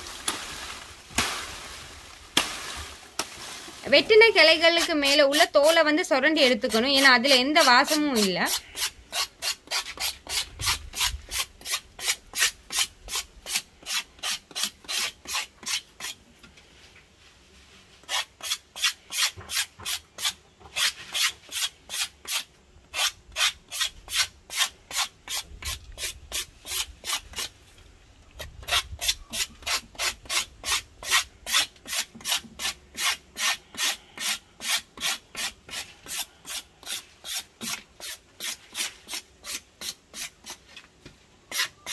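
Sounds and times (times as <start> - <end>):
knife scraping bark: 6.6 - 16.2, 18.0 - 27.6, 28.4 - 40.8, 41.5 - 41.9.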